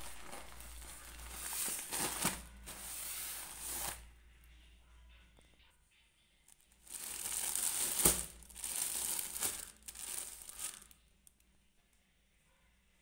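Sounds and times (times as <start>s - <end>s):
plastic film crinkling: 0.0s - 4.0s, 6.8s - 11.0s
sharp plastic crack: 7.0s - 10.9s.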